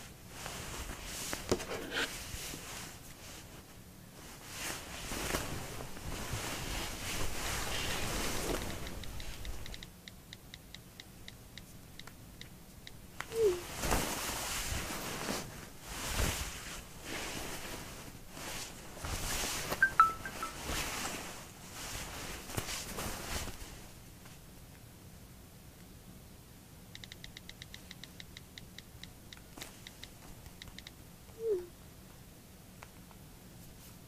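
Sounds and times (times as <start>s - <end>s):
bed covers rustling: 0.0s - 9.7s, 13.4s - 24.5s
phone keyboard clicks: 27.0s - 31.0s.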